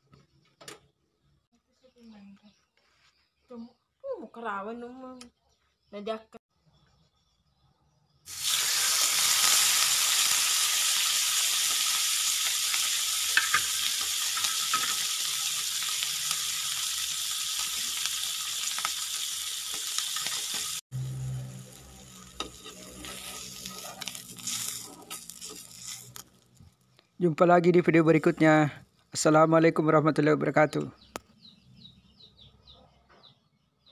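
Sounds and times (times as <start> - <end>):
fish sizzling in hot oil: 8.3 - 26.6
metal spatula scraping pan: 22.3 - 26.2.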